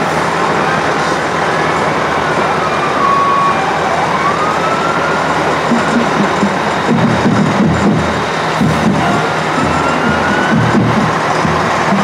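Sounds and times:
fire engine siren wailing: 0.0s - 12.0s
passing trucks: 0.0s - 12.0s.

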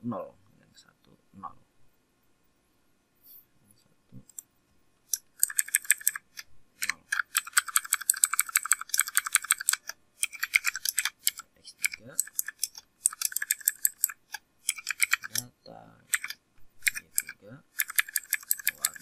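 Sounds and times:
keyboard typing: 5.1s - 15.5s, 16.1s - 19.0s.

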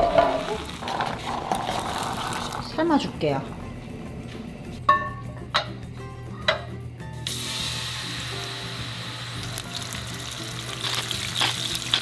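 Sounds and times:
background music: 0.0s - 12.0s
fish sizzling in a pan: 7.3s - 12.0s.

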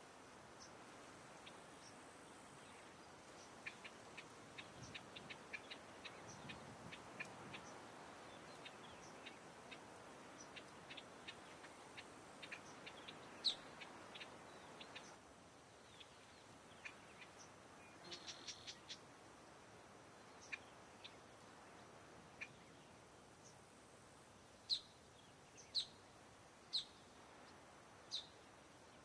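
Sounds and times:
soft steady hiss: 0.0s - 29.0s
high chirps and ticks: 3.4s - 7.8s, 10.4s - 15.2s.

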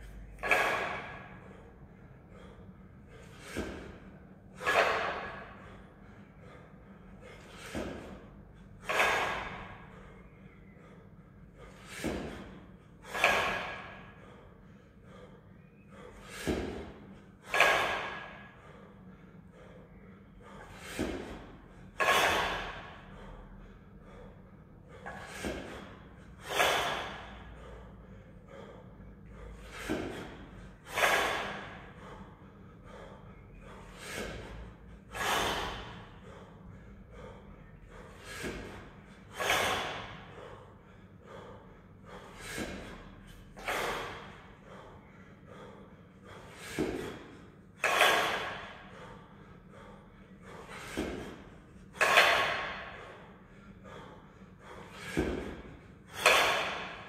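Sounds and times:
person breathing hard and exhaling: 0.0s - 57.0s.

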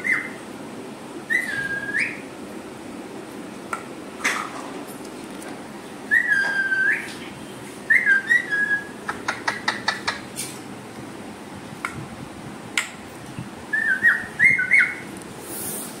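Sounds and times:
parrot whistling a tune: 0.0s - 0.4s, 1.3s - 2.2s, 6.1s - 7.1s, 7.9s - 9.0s, 13.7s - 15.1s.

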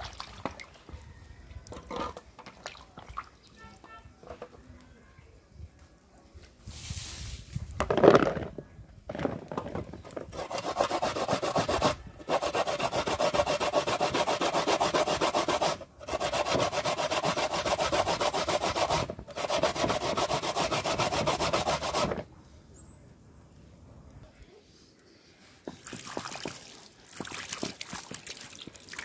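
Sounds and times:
coconut grated on metal grater: 10.4s - 22.2s.

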